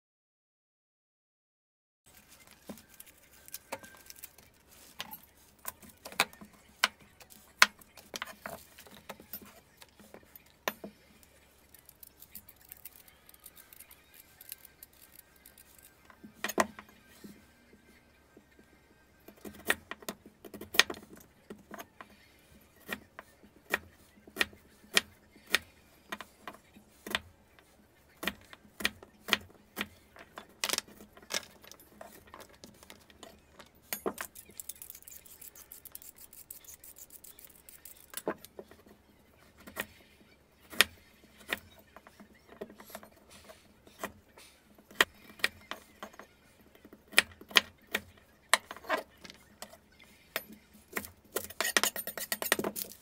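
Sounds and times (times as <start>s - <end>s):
vegetable peeler scraping: 31.9s - 38.6s, 50.4s - 53.0s.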